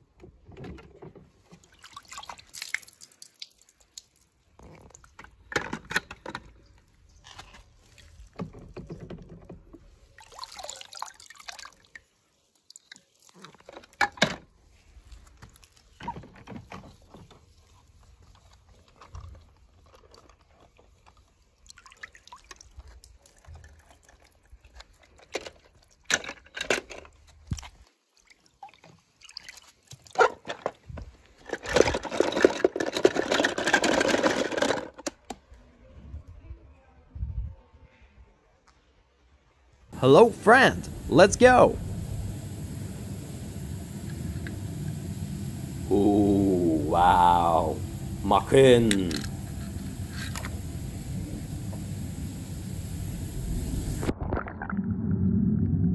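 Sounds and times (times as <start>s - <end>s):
water sloshing and dripping: 1.4s - 5.5s, 7.6s - 14.0s, 20.1s - 25.2s, 28.1s - 30.7s
toy cars clattering in plastic bucket: 25.1s - 27.4s, 30.3s - 35.3s.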